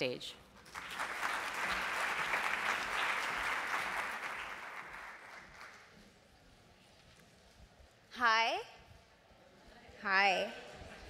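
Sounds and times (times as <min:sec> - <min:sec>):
audience applauding: 0:00.6 - 0:05.9.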